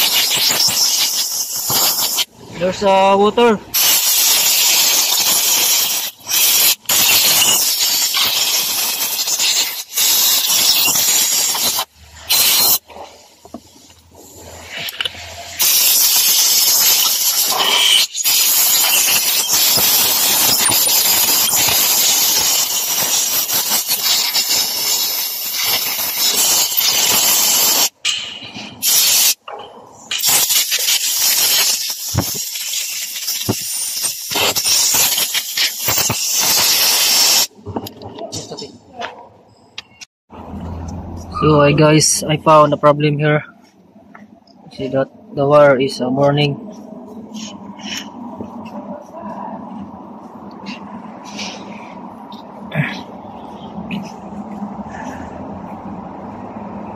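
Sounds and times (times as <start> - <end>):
compressed air blow gun hissing: 0.0 - 2.3, 15.6 - 27.9.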